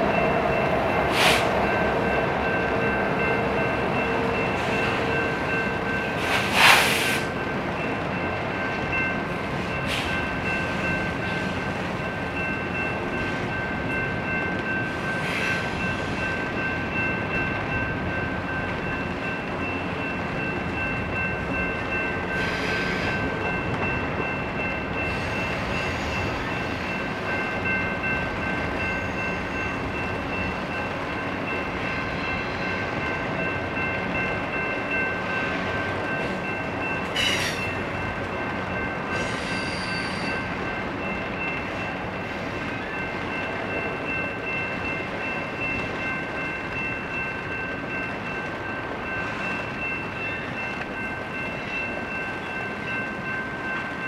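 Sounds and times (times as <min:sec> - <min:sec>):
freight train rumble: 0:00.0 - 0:54.0
train clank or screech: 0:01.1 - 0:01.5, 0:06.2 - 0:07.3, 0:09.8 - 0:10.2, 0:22.4 - 0:23.3, 0:37.1 - 0:37.8, 0:39.1 - 0:40.4
high-pitched wheel squeal: 0:39.2 - 0:40.4.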